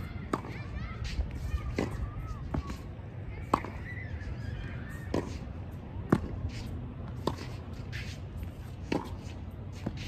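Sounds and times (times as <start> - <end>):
shoes scuffing on court: 0.0 - 10.0
tennis ball struck by racket: 0.2 - 0.7, 1.4 - 3.8, 4.9 - 10.0.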